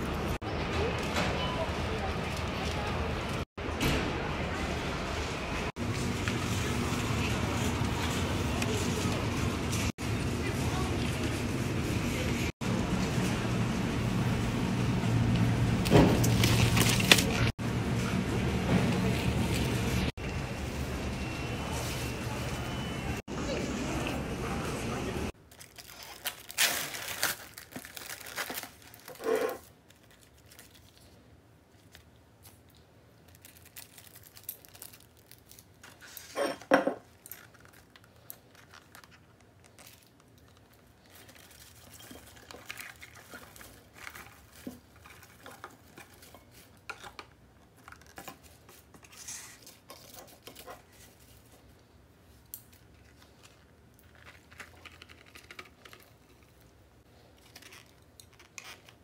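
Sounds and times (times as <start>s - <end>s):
plastic packaging crinkling: 16.2s - 17.5s, 25.4s - 36.3s, 37.0s - 51.8s, 52.5s - 59.0s
plastic tearing and crackling: 16.2s - 17.6s, 25.4s - 36.3s, 37.0s - 51.2s, 52.5s - 59.0s.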